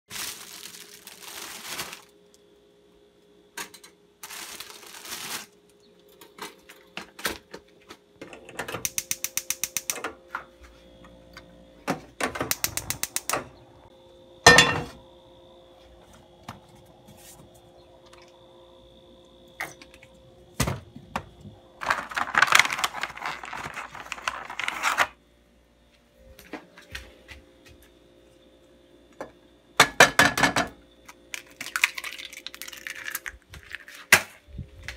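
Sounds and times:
plastic bag crinkling: 0:00.1 - 0:02.4, 0:04.2 - 0:05.7, 0:21.8 - 0:25.2, 0:31.4 - 0:34.1
faint steady hum: 0:00.1 - 0:34.9
gas stove igniter clicking: 0:08.8 - 0:10.0, 0:12.5 - 0:13.5
frying pan clanking: 0:14.5 - 0:15.0.

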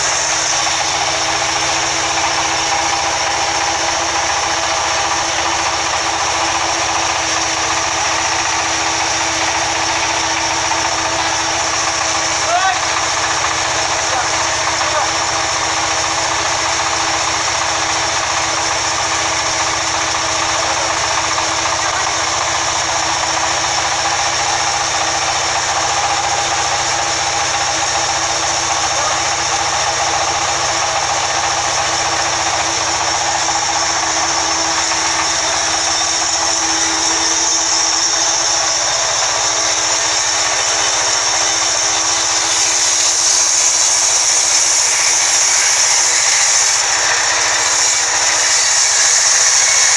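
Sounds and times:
band saw running: 0:00.0 - 0:49.9
saw blade hissing through log: 0:33.2 - 0:49.9.

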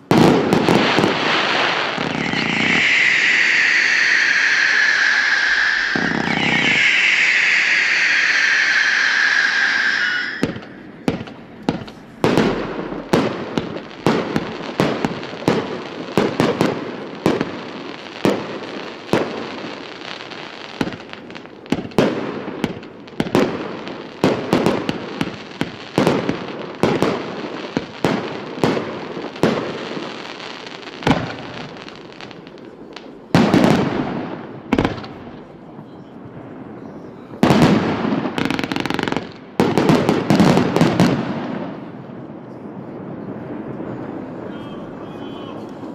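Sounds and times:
firework launch thumps and bursts: 0:00.1 - 0:17.5
firework spark hiss: 0:00.6 - 0:14.6.

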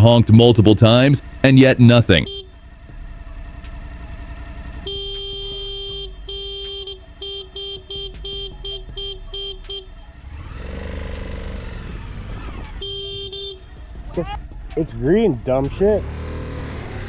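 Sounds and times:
motorcycle engine revving: 0:00.0 - 0:17.0
motorcycle horn beeping: 0:02.1 - 0:02.8, 0:04.8 - 0:10.2, 0:12.7 - 0:13.8.

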